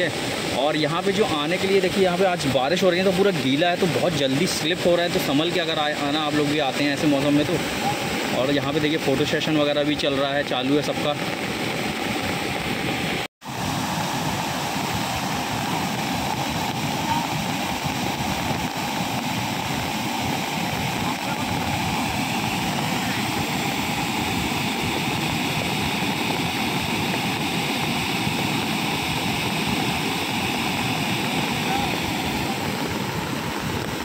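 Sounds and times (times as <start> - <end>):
waterfall rushing: 0.0 - 34.0.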